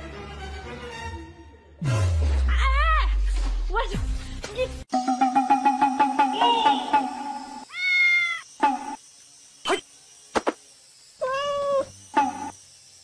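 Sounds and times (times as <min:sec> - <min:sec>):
repeating tone: 0:04.9 - 0:07.7
cat meowing: 0:07.7 - 0:08.4, 0:11.2 - 0:11.9.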